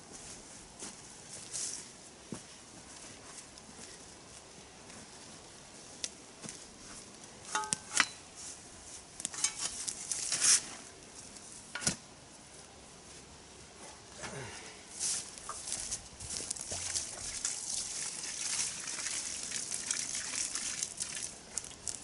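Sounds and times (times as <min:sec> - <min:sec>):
spade working soil: 0:09.2 - 0:11.0
footsteps through dry leaves: 0:14.9 - 0:17.2.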